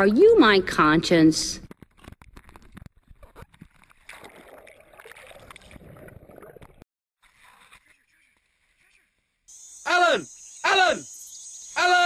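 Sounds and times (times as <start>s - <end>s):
wet sloshing: 2.0s - 6.8s.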